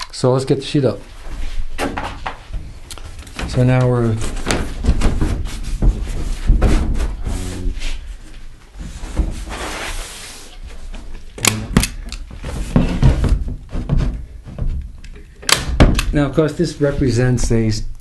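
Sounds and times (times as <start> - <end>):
wooden knocks: 11.7 - 16.2.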